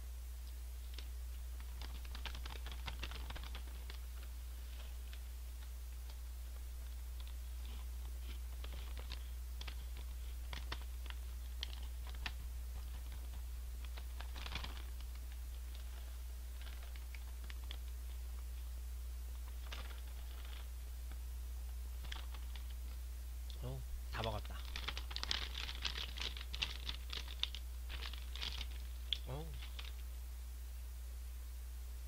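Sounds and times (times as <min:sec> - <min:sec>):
steady low hum: 0:00.0 - 0:32.0
chip bag crinkling: 0:01.6 - 0:05.2, 0:06.8 - 0:17.9, 0:19.3 - 0:20.7, 0:22.0 - 0:22.8, 0:24.5 - 0:30.0
chips crunching: 0:24.6 - 0:30.0.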